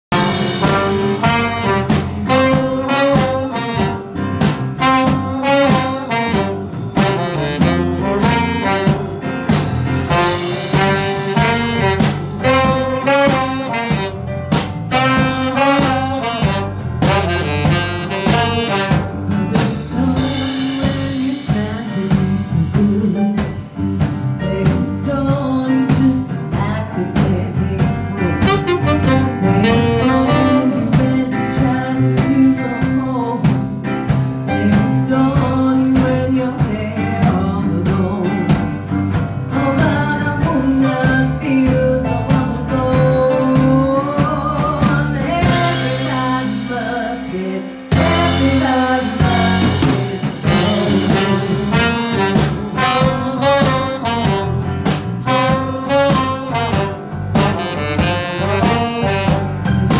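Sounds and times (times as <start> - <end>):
electric bass: 0.0 - 59.9
saxophone: 0.1 - 21.6, 27.7 - 33.5, 39.5 - 59.9
keyboard: 0.1 - 59.9
acoustic guitar: 16.1 - 59.9.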